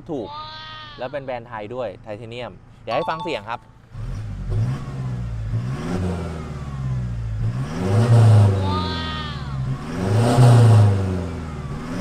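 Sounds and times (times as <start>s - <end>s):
diesel engine revving: 3.9s - 12.0s.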